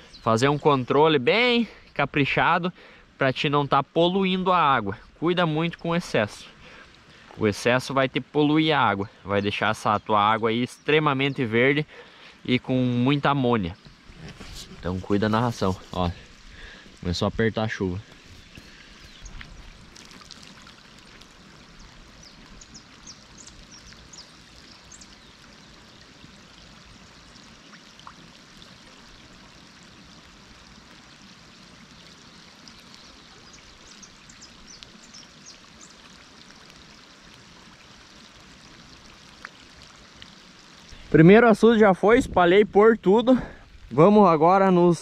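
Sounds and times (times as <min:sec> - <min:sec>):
rain hissing: 0:00.0 - 0:45.0
raindrops ticking: 0:14.7 - 0:42.0.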